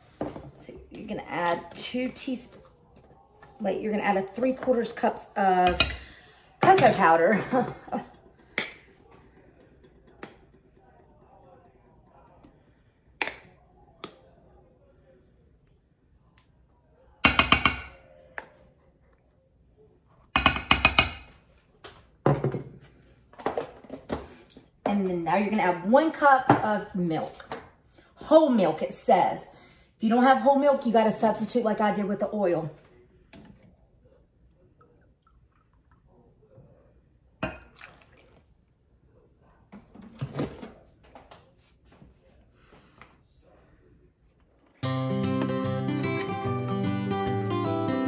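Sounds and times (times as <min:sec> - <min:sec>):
cup knocking on counter: 0:17.3 - 0:17.9, 0:20.4 - 0:21.3
milk pouring: 0:34.5 - 0:36.5, 0:37.5 - 0:38.6.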